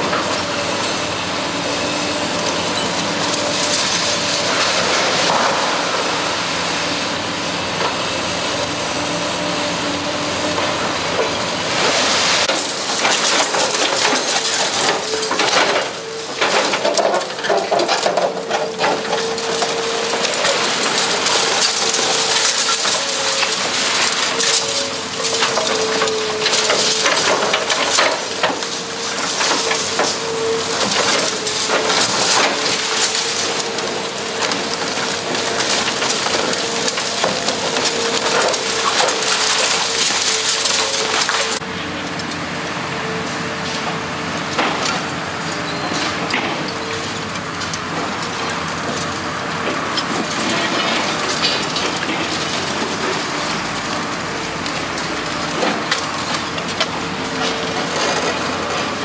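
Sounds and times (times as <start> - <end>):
machine hum and whine: 0.0 - 59.0
concrete cracking and crunching: 12.0 - 41.6.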